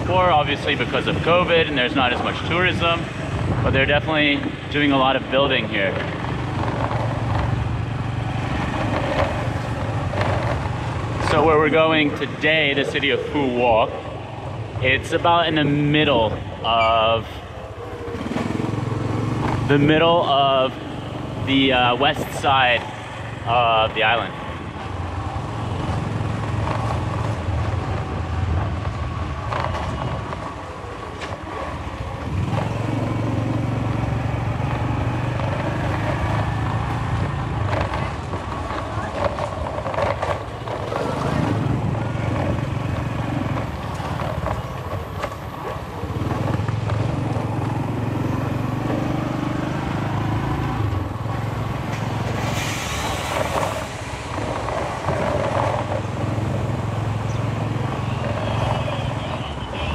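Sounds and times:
scooter engine running: 17.4s - 20.0s, 24.4s - 52.3s.

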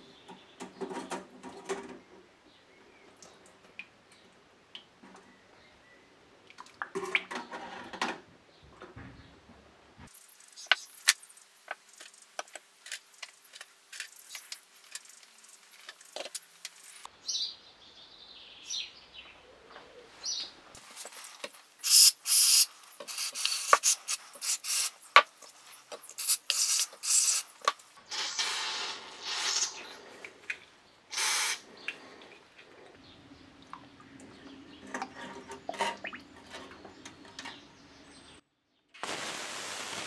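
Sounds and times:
aerosol cleaner spraying: 21.0s - 29.8s.

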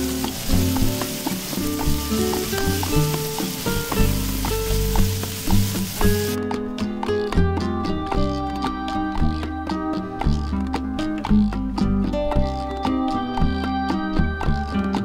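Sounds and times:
vegetables sizzling in a pan: 0.0s - 6.4s
background music: 0.0s - 15.0s.

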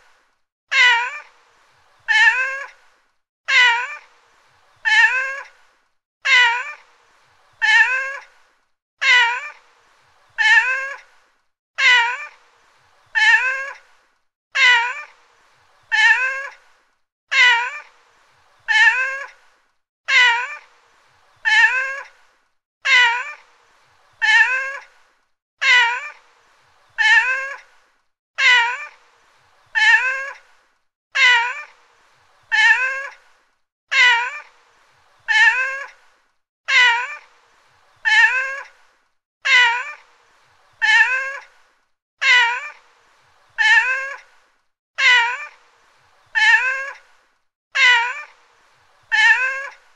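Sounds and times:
cat meowing: 0.7s - 1.2s, 2.1s - 2.7s, 3.5s - 4.0s, 4.8s - 5.5s, 6.3s - 6.8s, 7.6s - 8.2s, 9.0s - 9.5s, 10.4s - 11.0s, 11.8s - 12.3s, 13.2s - 13.8s, 14.6s - 15.1s, 15.9s - 16.6s, 17.3s - 17.8s, 18.7s - 19.3s, 20.1s - 20.6s, 21.4s - 22.1s, 22.8s - 23.4s, 24.2s - 24.8s, 25.6s - 26.1s, 27.0s - 27.6s, 28.4s - 29.0s, 29.8s - 30.4s, 31.2s - 31.7s, 32.5s - 33.2s, 33.9s - 34.5s, 35.3s - 35.9s, 36.7s - 37.2s, 38.0s - 38.7s, 39.4s - 40.0s, 40.8s - 41.4s, 42.2s - 42.8s, 43.6s - 44.2s, 45.0s - 45.6s, 46.4s - 47.0s, 47.8s - 48.3s, 49.1s - 49.8s.

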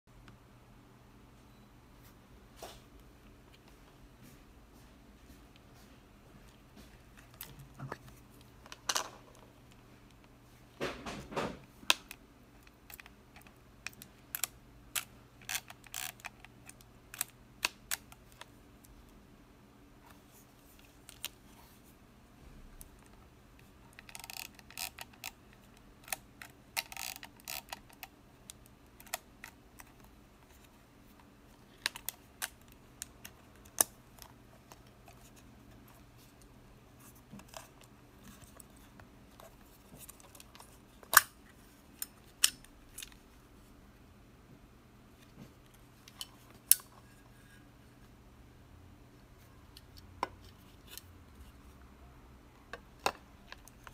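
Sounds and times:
camera ratcheting: 24.0s - 25.4s, 26.8s - 27.9s.

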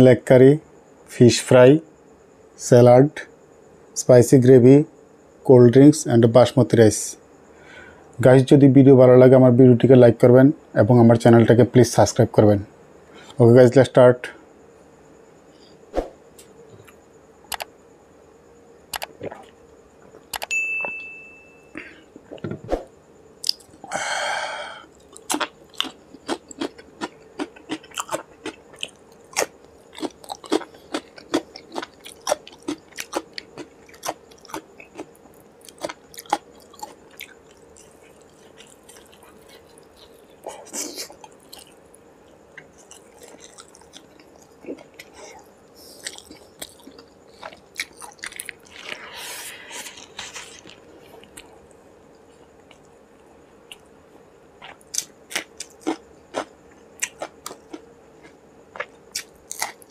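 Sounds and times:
glass clink: 20.5s - 21.7s.

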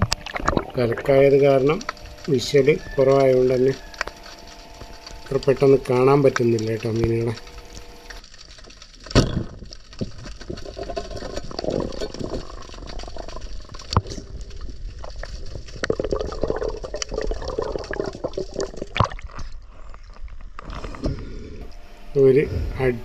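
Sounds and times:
muffled underwater river noise: 0.0s - 9.0s
water bubbling: 0.0s - 20.6s.

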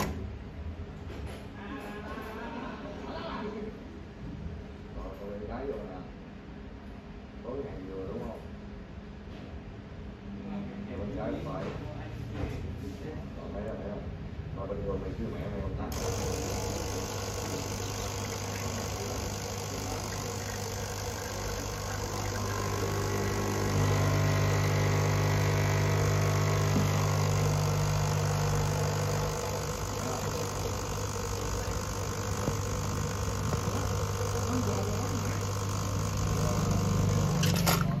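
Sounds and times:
espresso machine pump humming: 0.0s - 0.2s, 15.9s - 38.0s.

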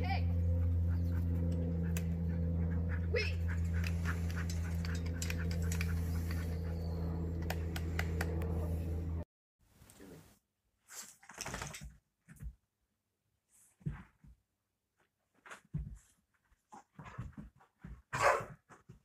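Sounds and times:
low mechanical hum: 0.0s - 9.2s.

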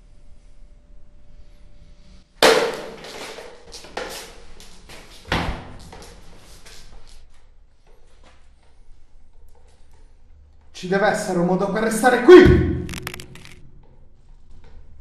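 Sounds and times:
heavy thud: 12.3s - 13.7s
loud crash: 12.3s - 13.7s.

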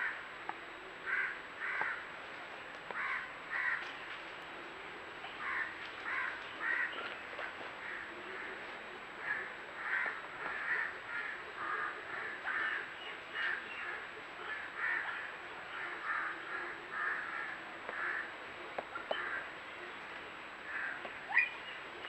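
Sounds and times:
birds cawing: 1.1s - 2.0s, 2.9s - 4.0s, 5.4s - 7.2s, 9.2s - 18.3s, 20.6s - 21.8s.

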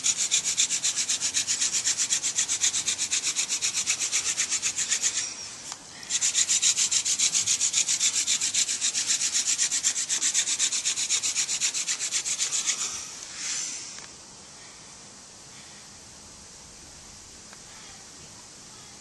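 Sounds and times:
wood rubbing on wood: 0.0s - 14.0s.

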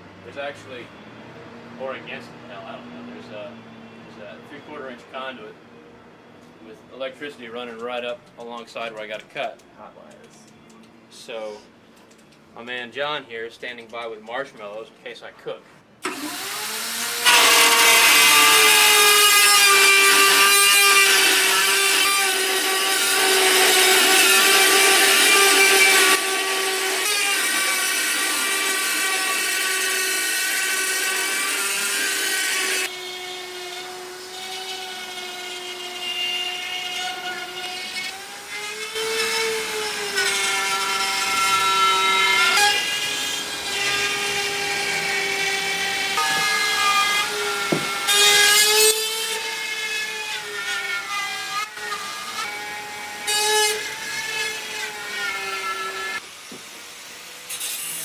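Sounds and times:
power saw cutting steel: 16.0s - 58.0s.

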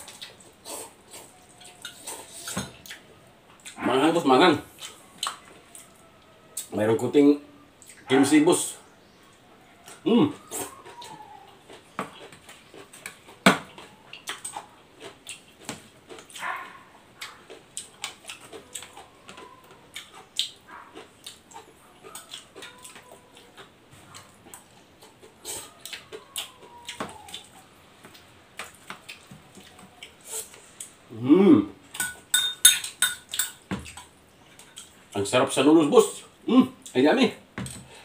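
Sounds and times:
chewing: 0.0s - 3.8s, 4.7s - 6.7s, 7.8s - 8.1s, 9.2s - 31.0s, 31.9s - 35.2s
cutlery tapping on dishes: 32.0s - 33.9s.

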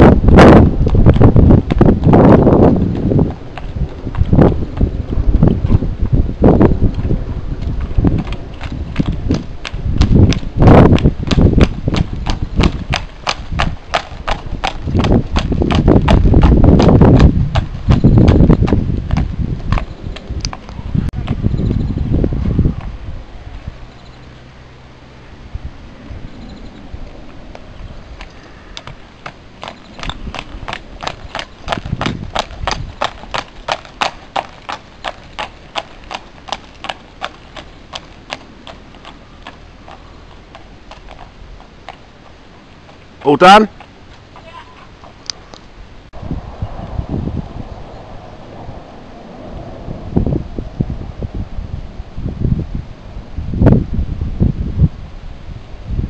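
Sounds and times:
horse hooves on pavement: 0.0s - 24.4s, 27.0s - 45.7s
low rumble: 45.7s - 56.0s.

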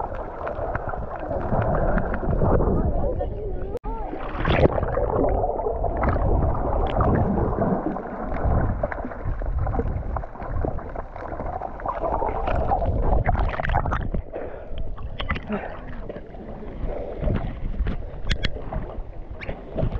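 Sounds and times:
muffled water gurgling and sloshing: 0.0s - 19.9s.

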